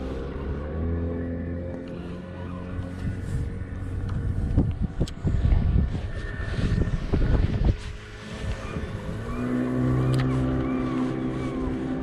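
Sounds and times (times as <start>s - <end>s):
boat engine droning: 0.0s - 12.0s
wind buffeting microphone: 2.6s - 12.0s.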